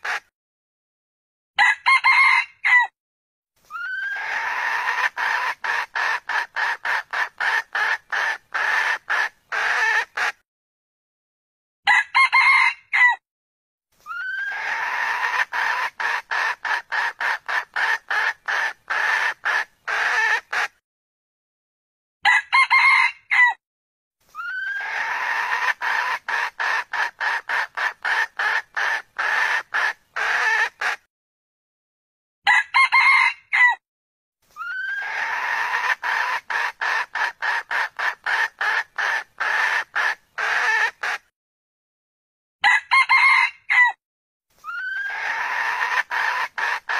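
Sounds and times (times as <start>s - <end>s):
rapid junglefowl clucks: 0.0s - 0.3s, 3.7s - 10.4s, 14.1s - 20.8s, 24.4s - 31.1s, 34.5s - 41.3s, 44.6s - 46.9s
junglefowl crowing: 1.6s - 2.9s, 3.7s - 10.4s, 11.9s - 13.2s, 14.1s - 20.7s, 22.2s - 23.6s, 24.4s - 31.0s, 32.5s - 33.8s, 34.6s - 41.2s, 42.6s - 44.0s, 44.7s - 46.9s.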